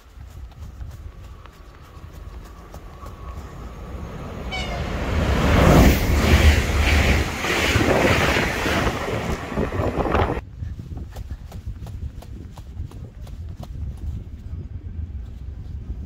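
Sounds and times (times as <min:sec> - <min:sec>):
train passing at speed: 0:00.0 - 0:10.4.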